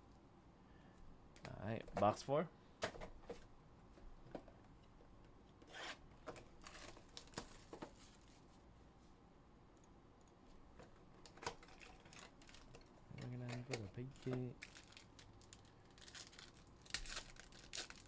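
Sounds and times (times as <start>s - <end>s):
plastic wrap crinkling and tearing: 6.6s - 8.3s, 11.3s - 18.0s.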